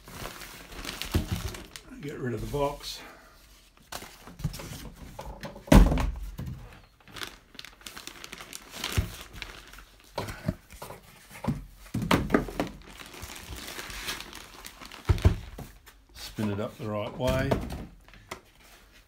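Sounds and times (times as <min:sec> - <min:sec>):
plastic bag crinkling: 0:00.0 - 0:02.8, 0:06.7 - 0:10.8, 0:12.4 - 0:17.4.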